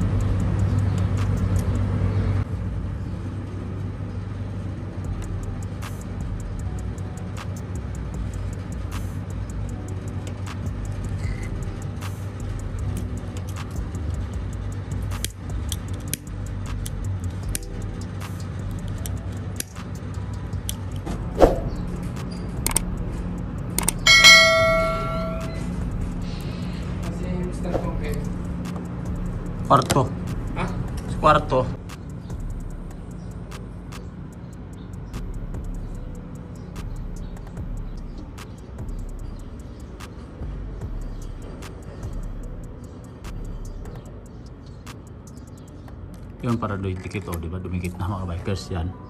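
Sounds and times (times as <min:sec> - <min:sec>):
steady low hum: 0:00.0 - 0:46.8
engine rumbling: 0:00.0 - 0:48.8
faint regular ticks: 0:05.2 - 0:21.0, 0:31.8 - 0:40.5
bell ding notification: 0:24.1 - 0:25.7.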